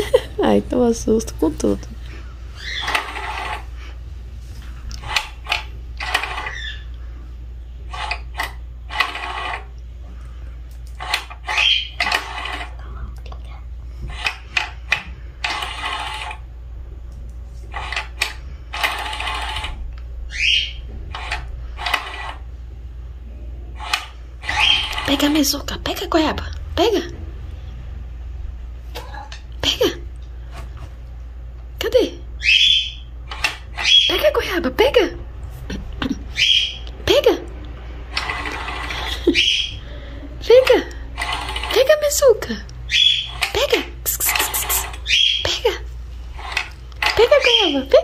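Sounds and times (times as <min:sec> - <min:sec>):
cat toy motor whirring and clicking: 0:02.6 - 0:03.9, 0:04.6 - 0:07.0, 0:07.8 - 0:09.8, 0:10.7 - 0:13.1, 0:13.9 - 0:16.5, 0:17.6 - 0:22.6, 0:23.7 - 0:25.6, 0:32.6 - 0:34.4, 0:38.1 - 0:39.8, 0:40.5 - 0:45.4, 0:46.3 - 0:48.0.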